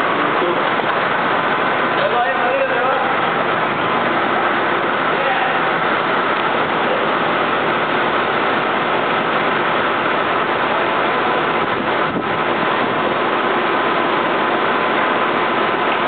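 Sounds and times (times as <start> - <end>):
extruder machine running: 0.0 - 16.0.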